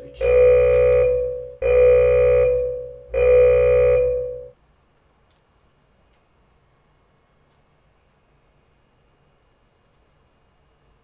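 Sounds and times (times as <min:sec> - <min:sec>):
timer buzzer: 0:00.0 - 0:04.5.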